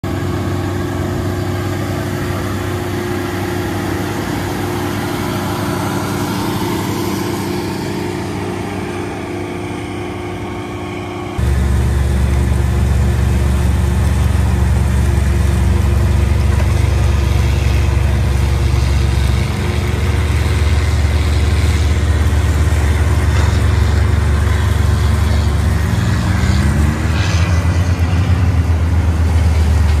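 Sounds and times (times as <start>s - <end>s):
tractor diesel engine droning: 0.0s - 30.0s.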